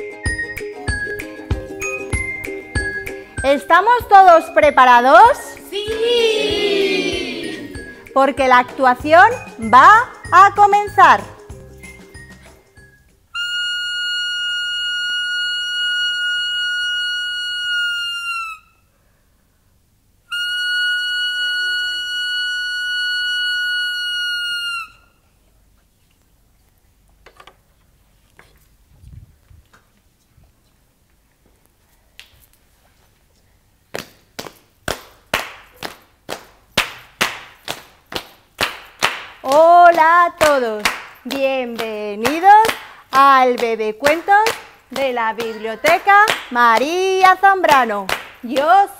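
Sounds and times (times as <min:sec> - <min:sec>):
hands clapping: 0:05.5 - 0:07.9, 0:34.0 - 0:47.0, 0:47.6 - 0:48.7
whistle long note: 0:13.3 - 0:18.9, 0:20.3 - 0:25.2.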